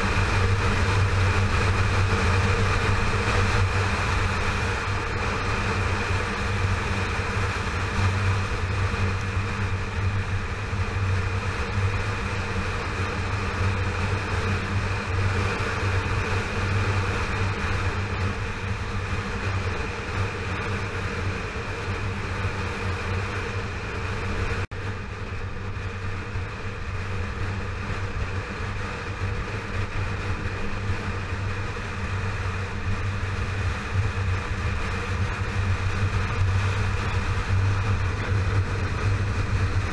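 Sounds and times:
motorcycle engine running: 0.0 - 39.9
steady rushing noise: 0.0 - 39.9.

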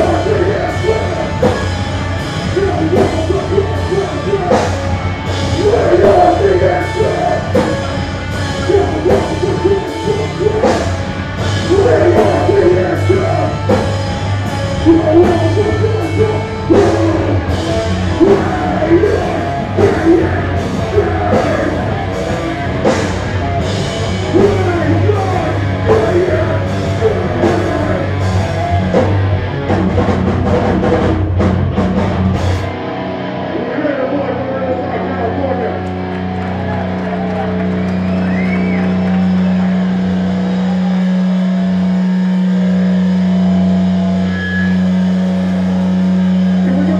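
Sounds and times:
bass guitar: 0.0 - 46.9
distorted electric guitars: 0.0 - 46.9
drums: 0.0 - 46.9
person singing into microphone: 18.1 - 22.0.

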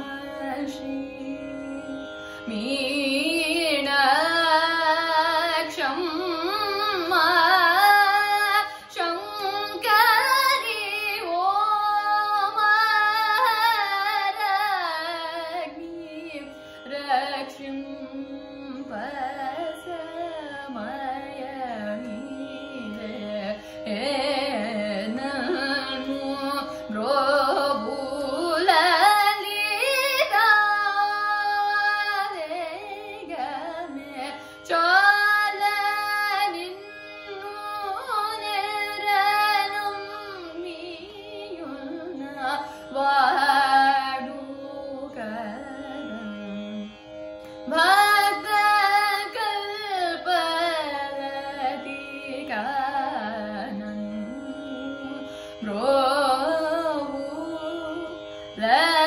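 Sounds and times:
woman singing ornamented phrases: 0.0 - 46.8, 47.7 - 59.0.

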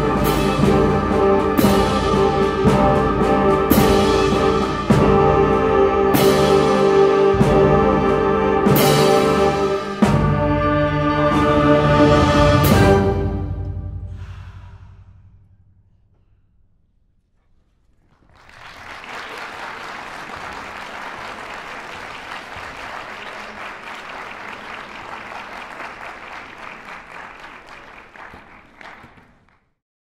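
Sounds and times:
audience applauding: 18.0 - 29.8.

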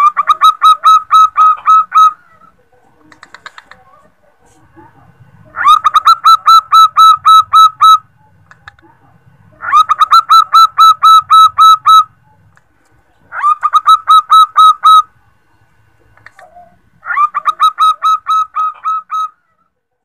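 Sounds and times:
dove cooing: 0.0 - 4.2, 5.4 - 8.8, 9.5 - 12.4, 13.3 - 15.1, 16.2 - 19.6.

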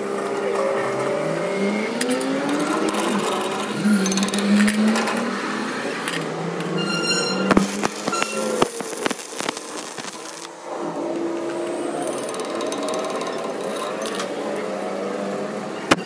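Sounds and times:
electric motor spinning up and humming: 7.5 - 10.5.

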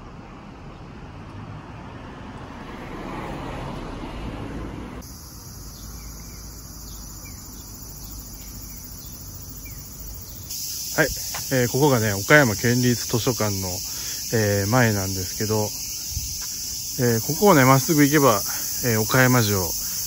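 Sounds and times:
street noise: 0.0 - 20.0
insects shrilling: 5.0 - 20.0.

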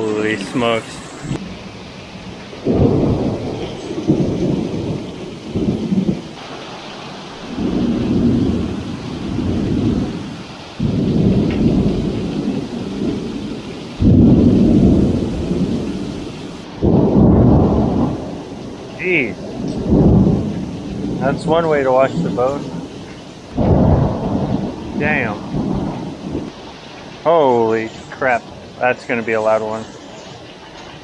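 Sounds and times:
thunder rumbles: 0.0 - 29.6
heavy rain hissing: 0.0 - 31.0.

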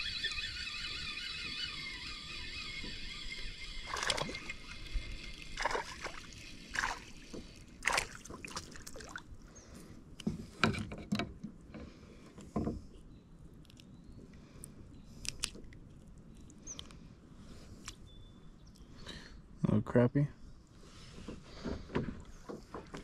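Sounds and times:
water splashing and sloshing: 3.8 - 12.8.

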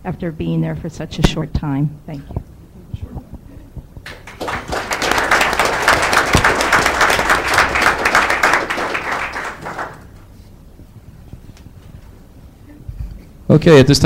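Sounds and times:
audience applauding: 4.0 - 10.3.

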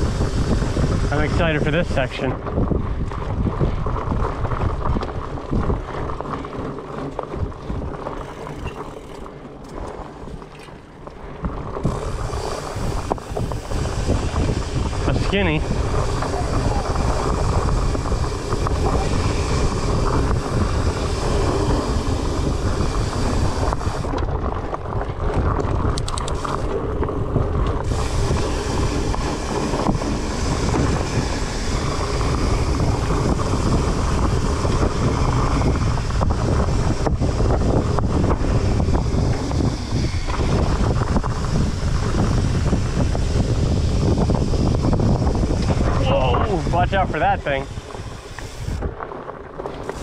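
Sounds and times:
bike knocking and rattling: 0.0 - 50.0
bike tyres rumbling on dirt trail: 0.0 - 50.0
wind rushing over microphone: 0.0 - 50.0.

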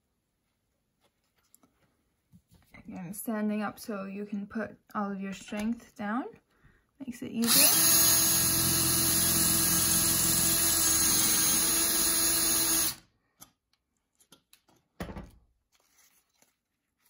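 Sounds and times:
cordless drill boring through metal: 7.4 - 13.0.

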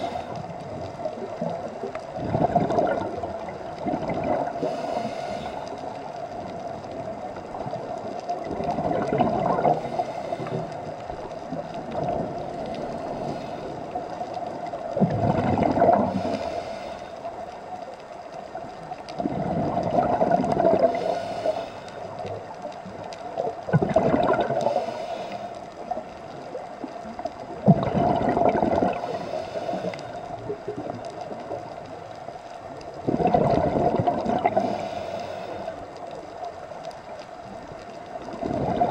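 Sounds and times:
exhaled bubbles gurgling underwater: 0.0 - 38.9
regulator inhalation hiss: 4.6 - 5.8, 16.1 - 17.2, 20.9 - 22.2, 24.6 - 25.6, 29.0 - 30.2, 34.6 - 35.8.

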